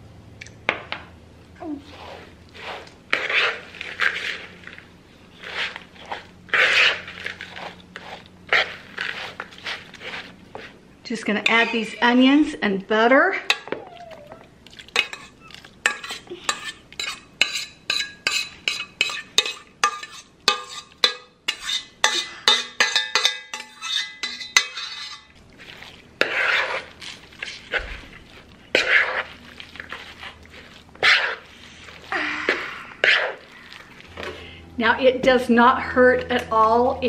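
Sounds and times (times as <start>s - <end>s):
spoon stirring thick mixture in bowl: 1.8s - 12.0s, 13.5s - 34.5s
metal spoon tapping saucepan: 15.9s - 24.9s.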